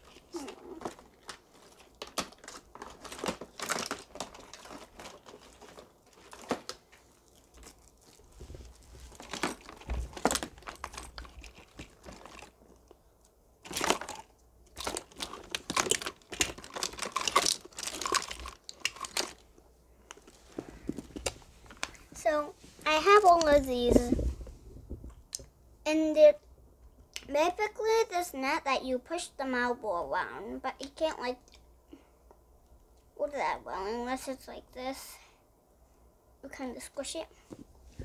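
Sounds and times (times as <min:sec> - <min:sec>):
plastic toys crinkling and clicking: 0:00.0 - 0:24.2.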